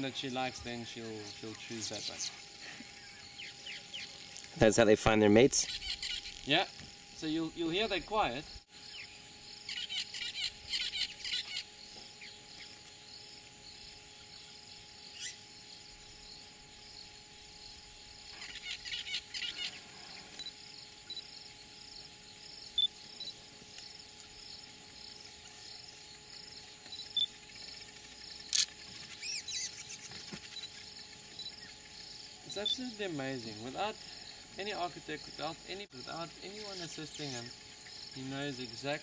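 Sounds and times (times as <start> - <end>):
pulsing insect chorus: 0.0 - 39.0
weaver birds chattering: 0.0 - 39.0
sharp bird chirps: 5.6 - 6.5, 8.3 - 12.8.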